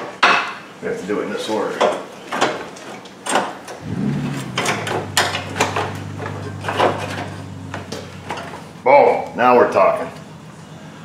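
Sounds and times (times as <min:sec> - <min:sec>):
low steady hum: 0:03.8 - 0:09.4.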